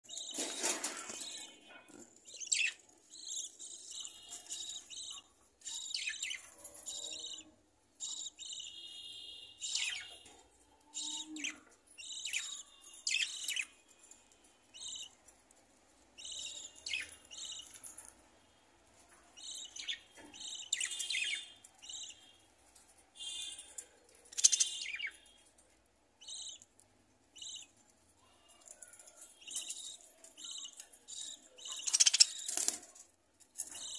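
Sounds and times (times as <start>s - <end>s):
budgerigars chirping: 2.3s - 7.4s, 24.3s - 25.3s, 26.2s - 26.7s, 29.5s - 32.6s.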